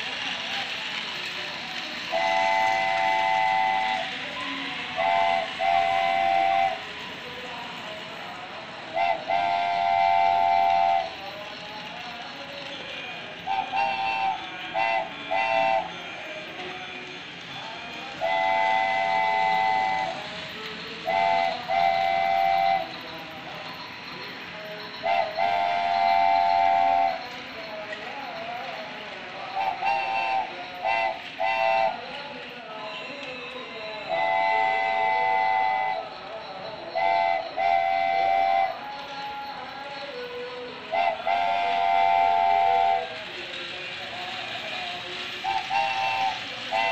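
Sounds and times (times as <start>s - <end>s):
toy train running: 0.0s - 46.9s
electronic toy train whistle: 2.1s - 7.1s, 9.0s - 11.3s, 13.4s - 16.7s, 18.2s - 20.3s, 21.0s - 23.2s, 24.8s - 27.9s, 29.6s - 32.2s, 33.9s - 43.2s, 45.4s - 46.9s.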